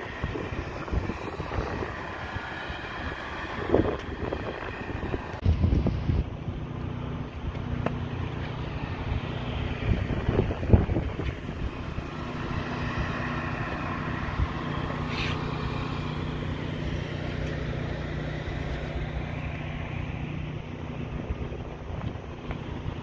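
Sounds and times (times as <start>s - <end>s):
wind on microphone: 0.0s - 6.7s, 9.0s - 17.0s.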